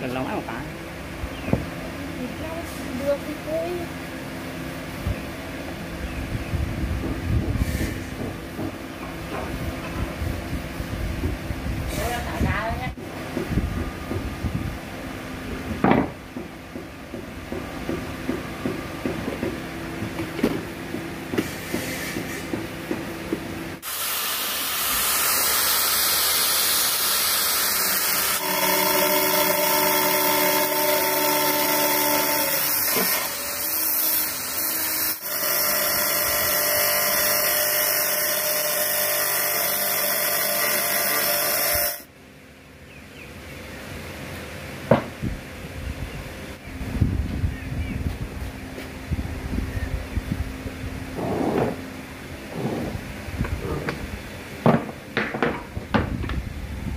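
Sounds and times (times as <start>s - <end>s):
angle grinder cutting steel: 23.8s - 42.1s.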